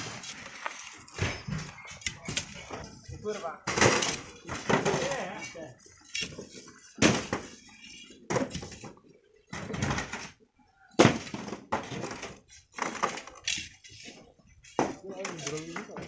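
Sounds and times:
shovels scraping sand and stones: 0:00.0 - 0:02.8.

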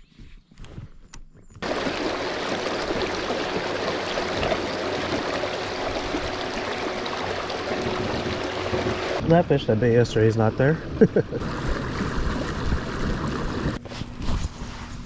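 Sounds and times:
water rushing along a hull: 0:01.6 - 0:13.8.

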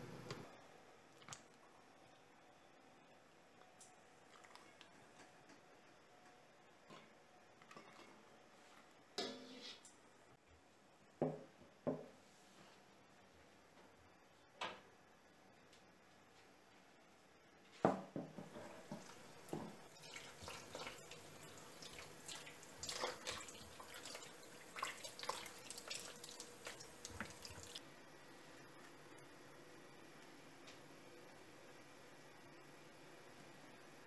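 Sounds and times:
water splashing: 0:18.8 - 0:27.8.

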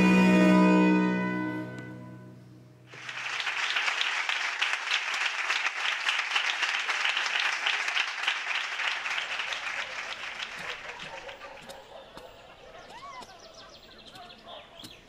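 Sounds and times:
string and harpsichord chord: 0:00.0 - 0:02.9
audience applause: 0:02.9 - 0:11.5.

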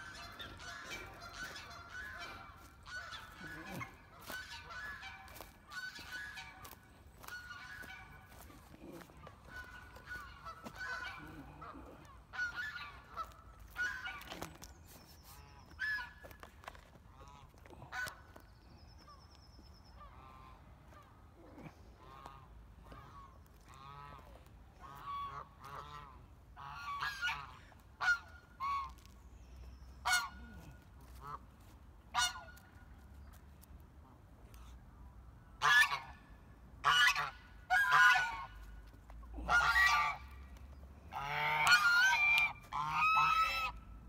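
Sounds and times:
birds honking: 0:00.0 - 0:14.7, 0:30.0 - 0:31.4, 0:36.8 - 0:38.7, 0:39.5 - 0:43.8.

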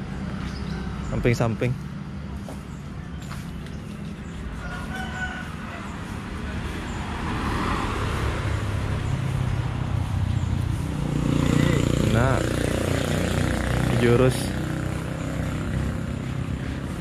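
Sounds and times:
rooster crowing: 0:04.6 - 0:06.2
vehicle engine running: 0:08.6 - 0:17.0.

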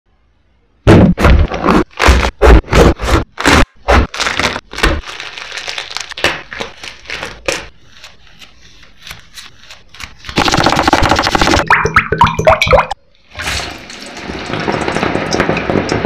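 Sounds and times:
crinkling and crackling: 0:03.0 - 0:08.2
slices frying in oil: 0:13.7 - 0:16.0.

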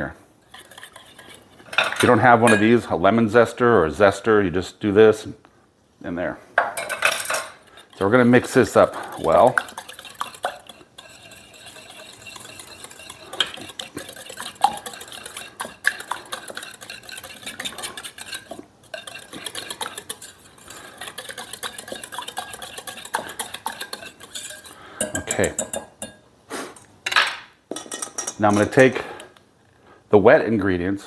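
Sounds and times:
whisk clattering in metal bowl: 0:00.5 - 0:02.7, 0:06.8 - 0:26.2.

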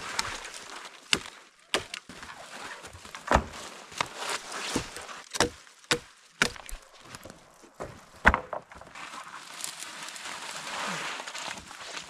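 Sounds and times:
dry branches snapping: 0:00.0 - 0:02.3, 0:03.0 - 0:07.3
twigs rustling: 0:00.0 - 0:12.0.

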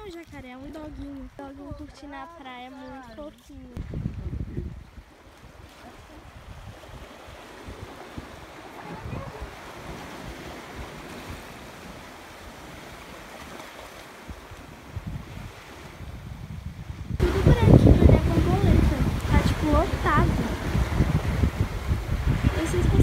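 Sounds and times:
wind gusting on microphone: 0:00.0 - 0:23.0
waves washing against rocks: 0:04.8 - 0:23.0.

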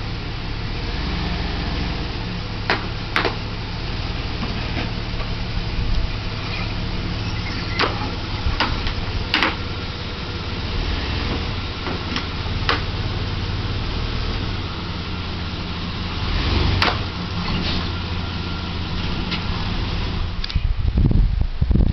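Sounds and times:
van engine running: 0:00.0 - 0:21.9
sharp knocks and clicks: 0:02.7 - 0:03.4, 0:07.8 - 0:09.6.

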